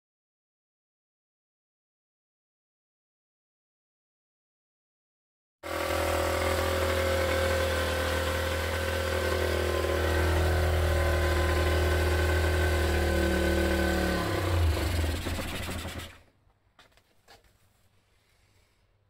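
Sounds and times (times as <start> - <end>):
motorcycle engine idling: 14.1 - 16.2.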